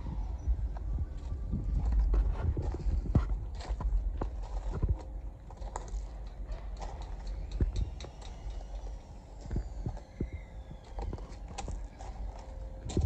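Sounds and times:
steady low rumble: 0.0s - 13.0s
footsteps on gravel: 0.7s - 7.2s, 10.8s - 13.0s.

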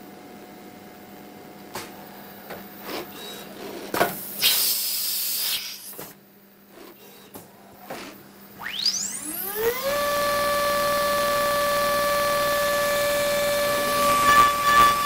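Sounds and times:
compressed air hiss: 4.2s - 6.1s
spindle whine: 8.6s - 15.0s.

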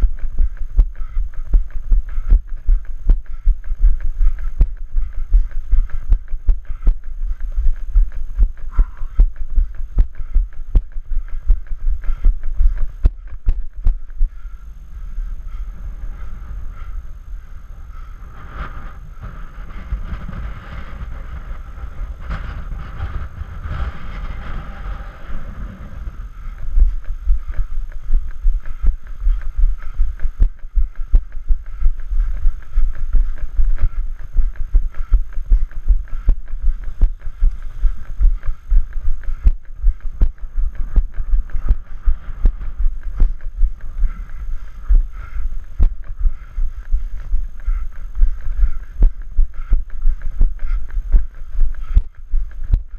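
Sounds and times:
wind rumble on microphone: 0.0s - 52.9s
running footsteps on rocky trail: 26.4s - 52.9s.

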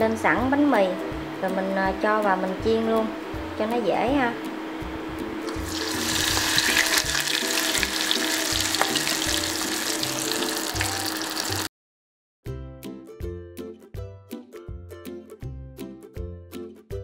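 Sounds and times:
background music: 0.0s - 11.7s, 12.5s - 17.0s
food deep-frying in oil: 5.4s - 11.7s.

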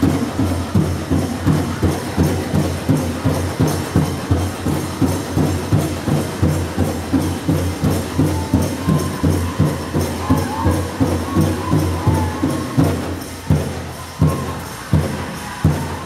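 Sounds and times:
bells jingling: 0.0s - 16.0s
drum group playing steady beat: 0.0s - 16.0s.

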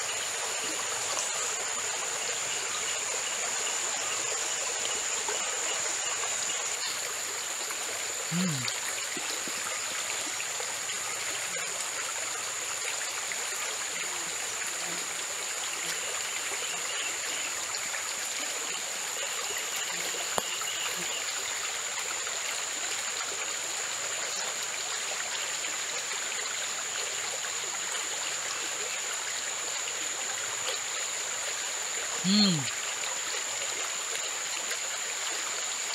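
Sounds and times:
stream running over rocks: 0.0s - 35.9s.

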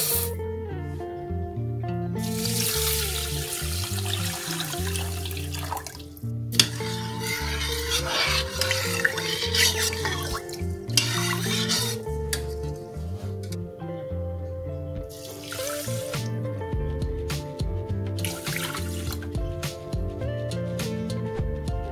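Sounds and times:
background music: 0.0s - 21.9s
water running into metal pot: 2.2s - 12.6s, 15.1s - 16.2s, 18.2s - 19.3s
spoon stirring rice in water: 6.6s - 12.8s, 18.2s - 19.3s.

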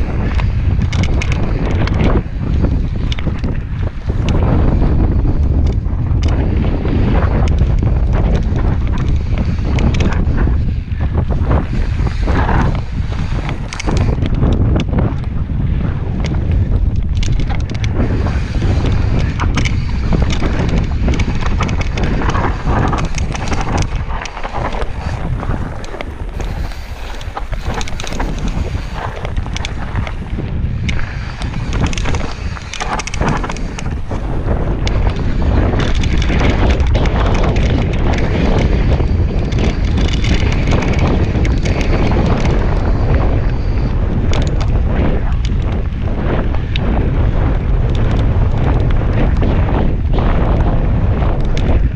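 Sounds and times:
bike clicks and rattles: 0.0s - 51.9s
wind buffeting microphone: 0.0s - 51.9s
tyres rolling on gravel: 17.3s - 38.4s.

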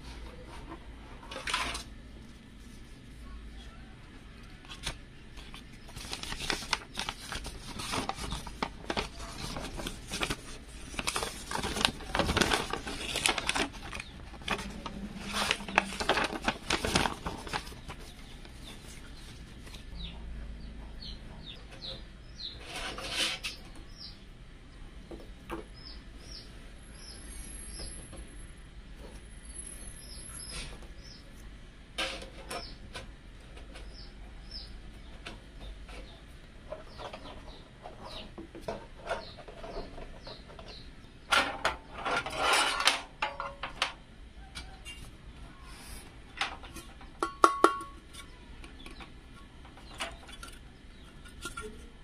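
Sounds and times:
paper crinkling and flapping: 4.4s - 19.9s.

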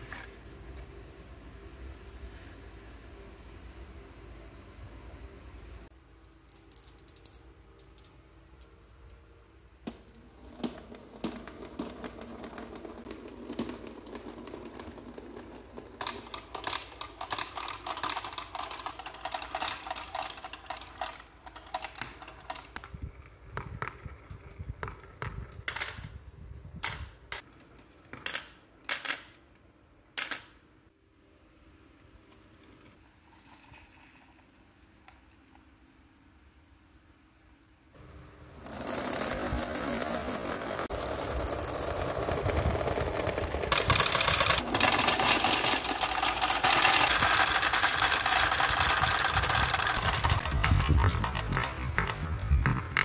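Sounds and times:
marbles clattering down tracks: 9.9s - 26.1s, 38.6s - 53.0s
marbles dropping into plastic truck: 9.9s - 26.2s, 38.6s - 53.0s.

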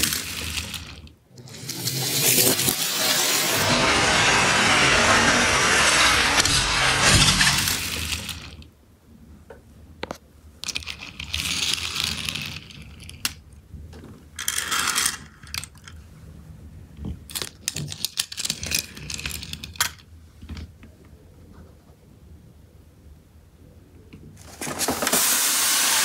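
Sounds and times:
toy cars clicking and clinking: 0.0s - 4.8s, 5.7s - 8.7s, 10.6s - 13.5s, 14.4s - 16.0s, 17.2s - 20.7s
toy cars rolling on hard floor: 0.0s - 8.7s, 10.6s - 13.4s, 14.1s - 16.0s, 17.1s - 20.7s, 24.4s - 26.0s.

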